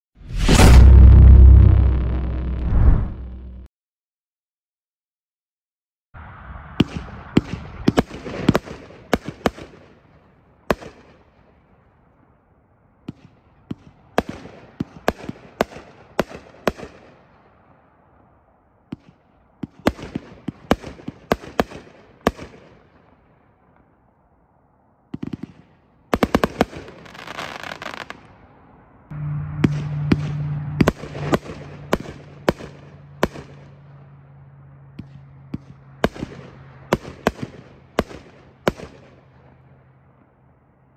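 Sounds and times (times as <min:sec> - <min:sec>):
firework shot reports: 0:00.2 - 0:03.7
crackling firework stars: 0:25.1 - 0:28.5, 0:29.7 - 0:33.8.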